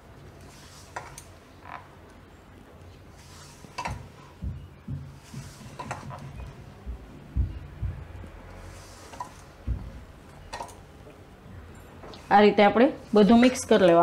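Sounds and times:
hand mixing dough in metal bowl: 3.0 - 6.9, 7.5 - 11.3.

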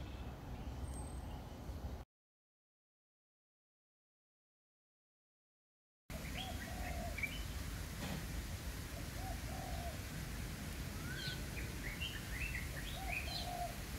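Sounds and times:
birds chirping: 6.1 - 7.8, 11.0 - 13.8
dove cooing: 6.4 - 7.3, 9.0 - 10.1, 12.8 - 13.8.

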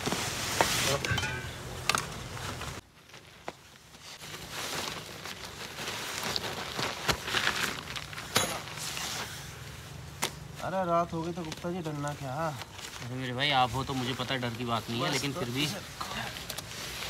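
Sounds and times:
nylon bag rustling: 2.1 - 9.8.

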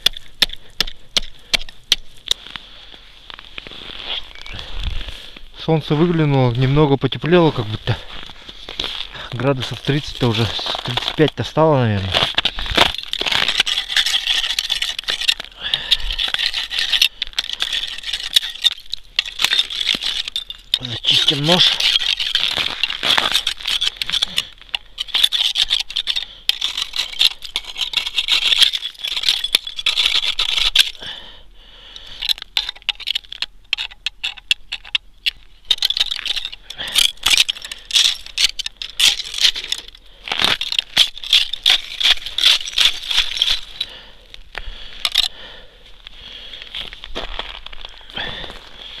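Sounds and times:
dry twigs rustling: 0.0 - 31.1, 32.1 - 49.0
knife scraping a branch: 12.2 - 31.0.

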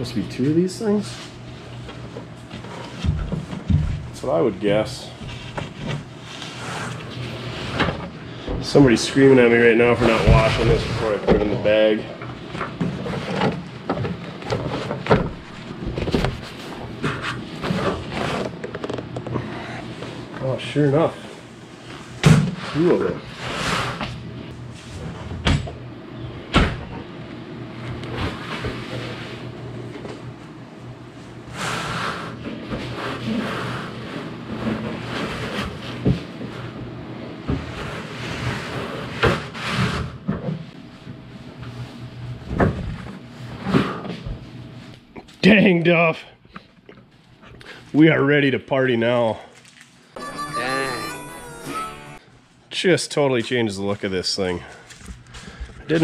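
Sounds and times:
panels rubbing and rustling: 4.9 - 11.8.

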